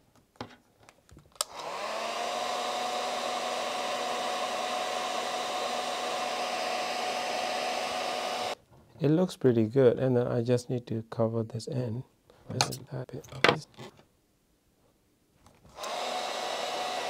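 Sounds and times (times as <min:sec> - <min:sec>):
heat gun fan whine and blowing: 0:01.4 - 0:08.6, 0:15.8 - 0:17.0.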